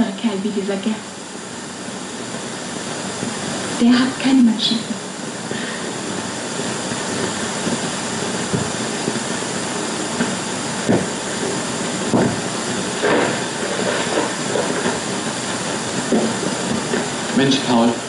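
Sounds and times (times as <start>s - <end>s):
film soundtrack hiss: 0.0s - 18.0s
dull knocks: 10.2s - 11.2s, 12.1s - 15.0s.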